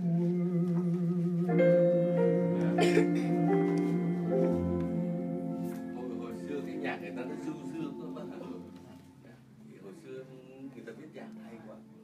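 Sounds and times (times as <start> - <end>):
ringing instrumental music notes: 0.8 - 9.2.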